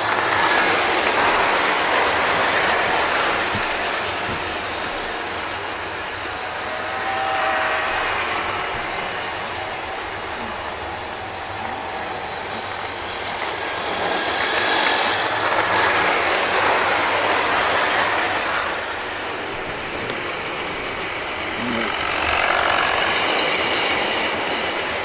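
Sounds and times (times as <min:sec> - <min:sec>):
wheels rattling on rail: 0:00.0 - 0:25.0
brief high whine: 0:02.3 - 0:12.6.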